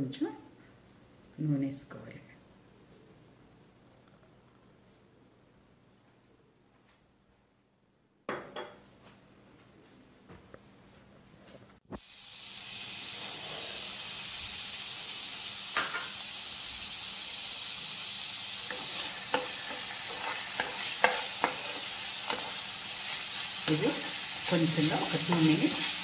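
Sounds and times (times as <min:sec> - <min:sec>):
onions sizzling in oil: 0:12.0 - 0:26.0
spatula scraping and knocking pan: 0:18.7 - 0:26.0.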